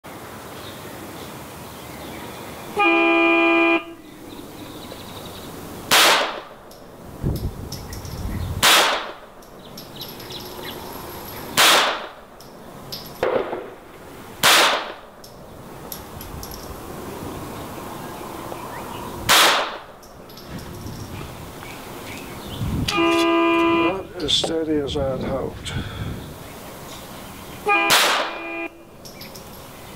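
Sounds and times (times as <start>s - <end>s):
gunshot cracks with echo: 5.9s - 6.6s, 8.6s - 9.2s, 11.6s - 12.2s, 13.2s - 13.8s, 14.4s - 15.1s, 19.3s - 19.9s, 27.9s - 28.4s.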